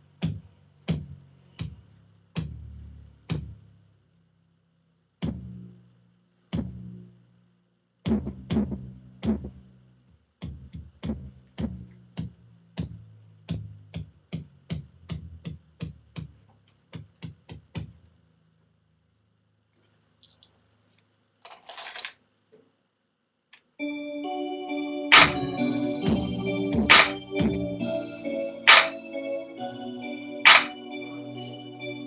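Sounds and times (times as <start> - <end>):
drum machine hits with bass tone: 0.2 - 1.8, 3.3 - 3.6, 5.2 - 5.7, 6.5 - 7.0, 8.0 - 9.7, 10.4 - 18.0, 25.1 - 28.0, 28.7 - 29.0, 30.5 - 30.8.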